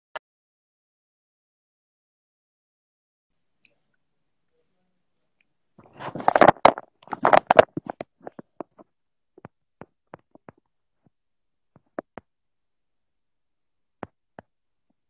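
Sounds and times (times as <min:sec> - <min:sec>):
phone handling rustling and knocking: 0:05.8 - 0:08.8.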